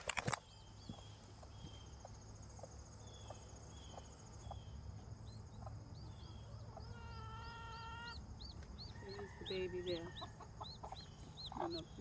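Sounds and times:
insect trilling: 0:03.0 - 0:12.0.

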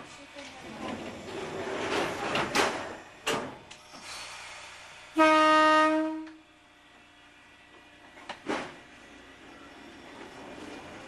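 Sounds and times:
train horn blast: 0:05.1 - 0:06.5.

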